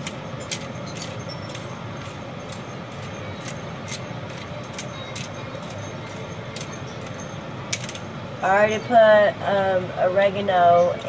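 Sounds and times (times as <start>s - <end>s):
high-pitched clicks: 0.0s - 8.2s
room fan hum: 0.0s - 11.0s.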